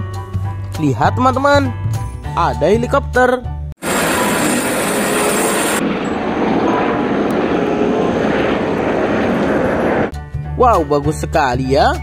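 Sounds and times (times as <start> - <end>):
helicopter turbine and rotor: 3.8 - 10.1.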